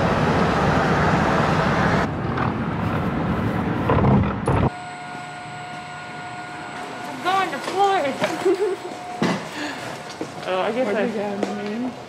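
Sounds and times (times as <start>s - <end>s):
car tyre and wind road noise: 0.0s - 4.8s.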